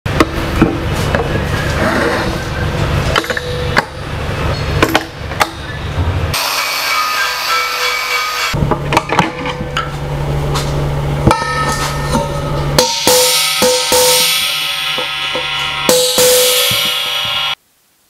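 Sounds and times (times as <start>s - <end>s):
hollow tank ringing: 3.1s - 9.9s, 11.2s - 17.6s
hammer striking metal cylinder: 3.1s - 10.0s, 11.2s - 17.6s.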